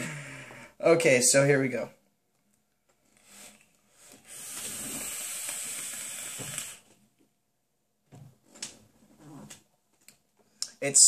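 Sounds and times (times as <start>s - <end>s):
airflow hiss: 3.2s - 6.9s
vape coil crackling and sizzling: 4.3s - 6.9s.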